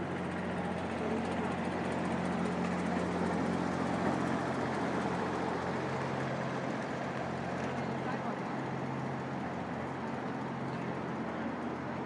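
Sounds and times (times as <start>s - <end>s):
road noise: 0.0s - 12.0s
vehicle engines humming: 0.0s - 12.0s.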